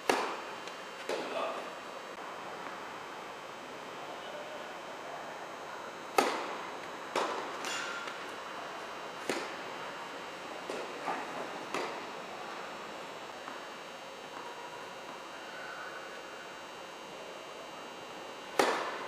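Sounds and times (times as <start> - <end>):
racket hitting tennis ball: 0.0 - 0.4, 6.1 - 8.2, 9.2 - 9.6, 11.7 - 12.0, 18.6 - 19.0
tennis ball bouncing: 0.0 - 0.4, 6.1 - 6.5, 7.1 - 8.2, 9.2 - 9.6, 11.7 - 12.0, 18.6 - 19.0.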